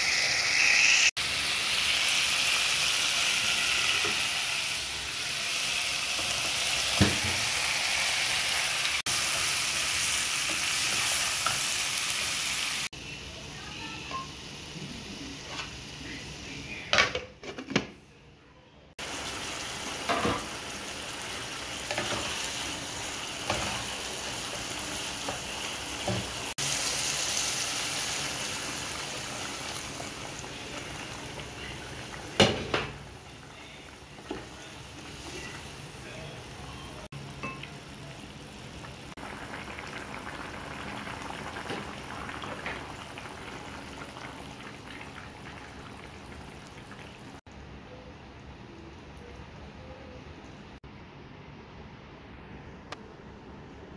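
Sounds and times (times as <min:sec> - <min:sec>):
water hissing in hot pan: 0:00.0 - 0:12.9, 0:19.0 - 0:32.7
food sizzling in oil: 0:00.0 - 0:13.0, 0:19.0 - 0:47.4
curry bubbling: 0:38.8 - 0:47.4.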